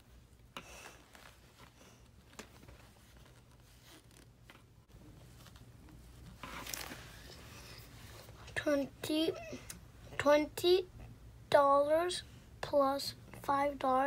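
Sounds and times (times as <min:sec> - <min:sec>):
paper rustling: 0:00.8 - 0:07.4.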